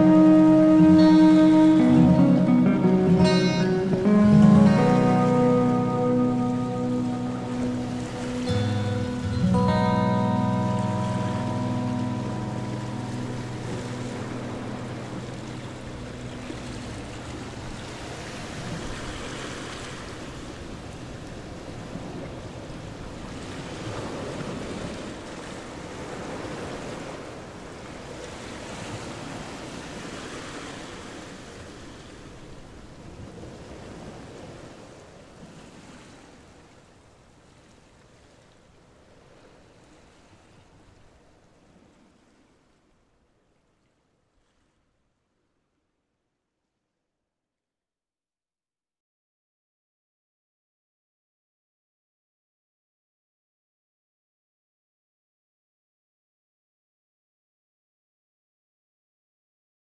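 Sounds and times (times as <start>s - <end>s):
low background music: 0.0s - 17.8s.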